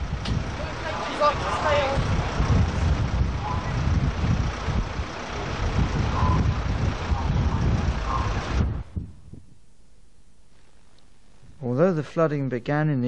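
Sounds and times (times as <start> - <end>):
vehicle engine running: 0.0 - 9.8
low outdoor noise: 0.0 - 13.0
faint voices: 0.6 - 2.1.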